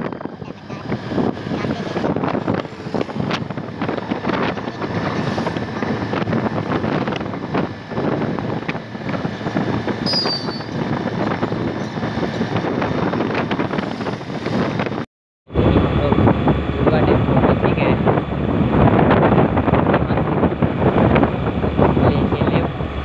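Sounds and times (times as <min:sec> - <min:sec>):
scooter road and engine noise: 0:00.0 - 0:23.0
wind buffeting microphone: 0:00.0 - 0:23.0
high-pitched chirp: 0:10.1 - 0:10.8.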